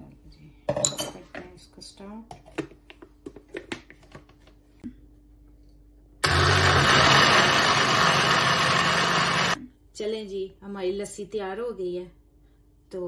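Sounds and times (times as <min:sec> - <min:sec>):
blender motor running: 0:06.2 - 0:09.6.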